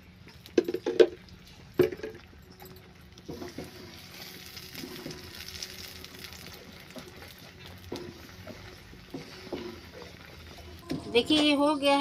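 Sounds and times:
faint sizzle: 0:03.0 - 0:12.0
spatula stirring thick mixture: 0:03.2 - 0:10.8.

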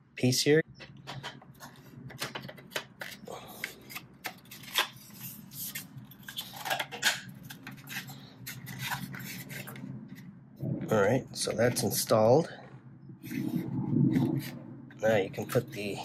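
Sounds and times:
plastic parts clicking and knocking: 0:00.8 - 0:03.2.

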